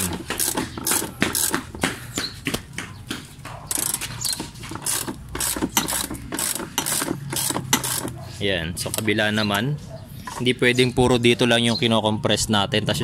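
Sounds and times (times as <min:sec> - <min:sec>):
ratchet clicking: 0:00.0 - 0:01.6, 0:03.7 - 0:08.2.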